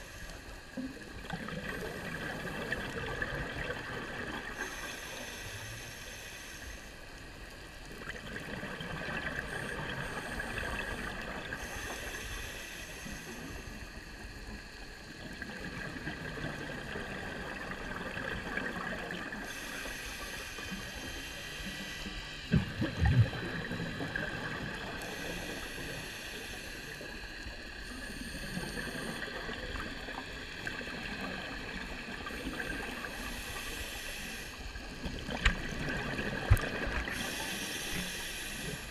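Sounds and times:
underwater water noise: 0:00.0 - 0:38.9
faint hiss: 0:04.4 - 0:07.8, 0:09.3 - 0:15.4, 0:18.9 - 0:35.0, 0:36.4 - 0:38.9.

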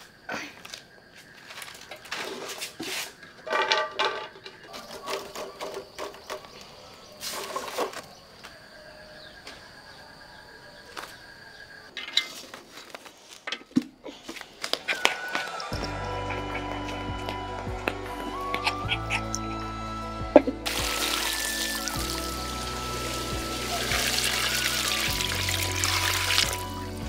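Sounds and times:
leaves rustling: 0:06.6 - 0:08.4, 0:20.6 - 0:27.0.

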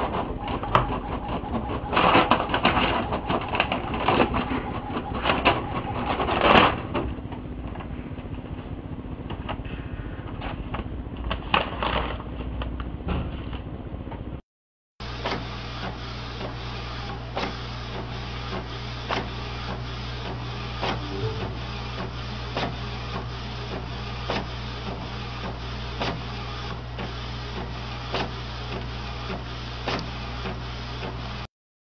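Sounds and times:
printer whirring: 0:00.0 - 0:07.3, 0:15.1 - 0:31.4.

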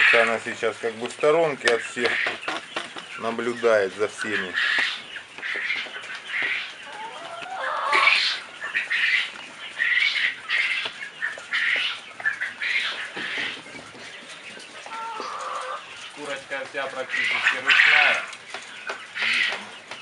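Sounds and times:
chicks peeping: 0:00.0 - 0:20.0.

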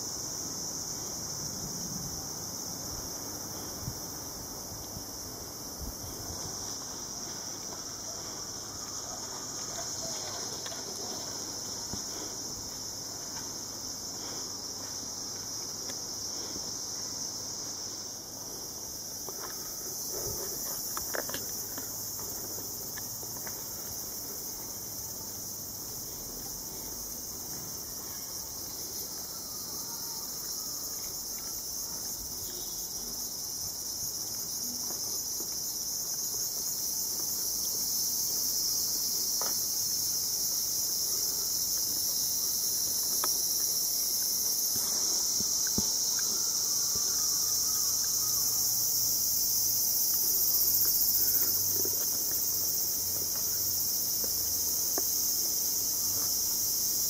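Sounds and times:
high-pitched insect chorus: 0:00.0 - 0:57.0.

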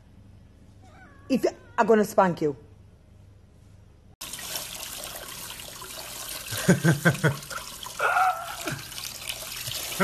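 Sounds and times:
water spraying from faucet: 0:04.2 - 0:10.0.

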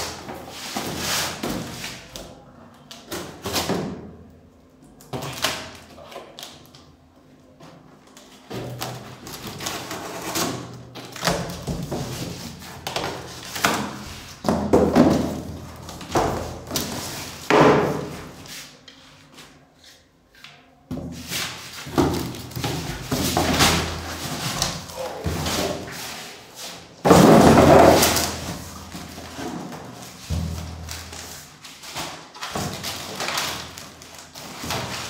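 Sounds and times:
boxes thumping: 0:09.5 - 0:18.4, 0:20.9 - 0:25.9, 0:27.0 - 0:31.2.

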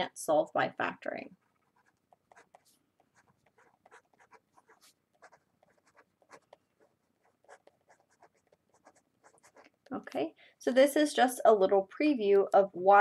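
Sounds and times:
marker writing on paper: 0:01.4 - 0:09.9.

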